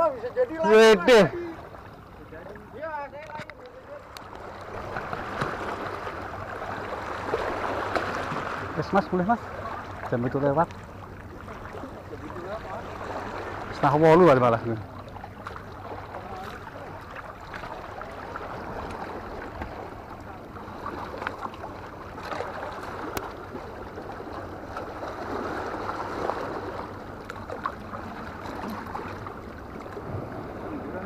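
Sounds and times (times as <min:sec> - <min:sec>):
seawater lapping against rocks: 0:00.0 - 0:31.0
faint clicks: 0:03.2 - 0:04.5.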